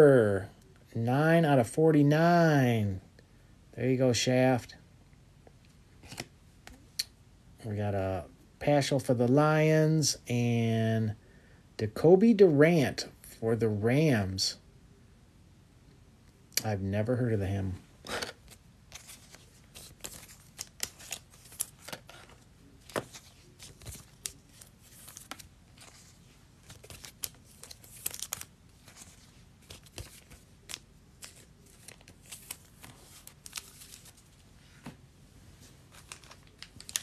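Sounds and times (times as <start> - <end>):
trading cards rustling and clicking: 6.0 - 6.8, 18.0 - 35.0, 35.6 - 37.0
pack wrappers rustling: 18.2 - 34.3, 35.9 - 37.0.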